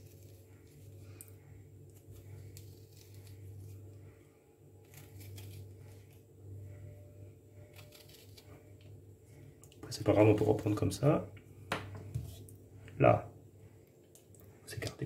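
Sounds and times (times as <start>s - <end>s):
knife rasping lemon peel: 0.0s - 1.0s, 2.0s - 4.0s, 4.8s - 6.3s
steady low hum: 0.0s - 15.0s.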